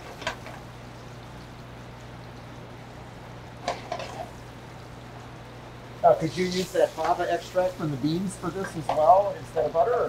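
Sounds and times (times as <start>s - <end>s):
vegetables sizzling in butter: 0.0s - 10.0s.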